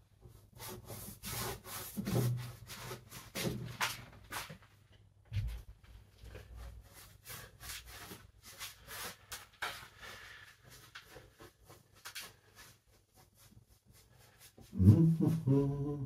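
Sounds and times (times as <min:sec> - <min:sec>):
paintbrush rubbing strokes: 0:00.2 - 0:03.5, 0:06.3 - 0:15.5.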